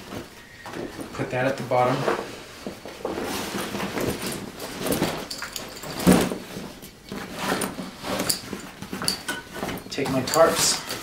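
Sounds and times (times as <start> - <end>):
buckles clicking: 4.1 - 6.3.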